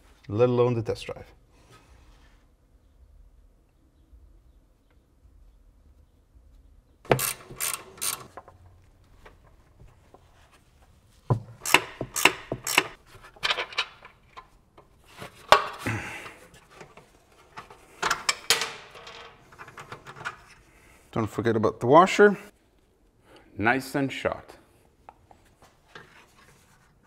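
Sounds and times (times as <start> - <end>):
ratchet wrench clicking: 7.1 - 8.3, 11.6 - 13.0.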